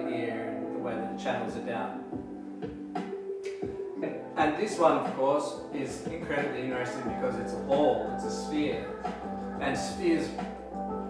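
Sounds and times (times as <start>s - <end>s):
held music notes: 0.0s - 11.0s
light sparse percussion: 2.2s - 10.8s.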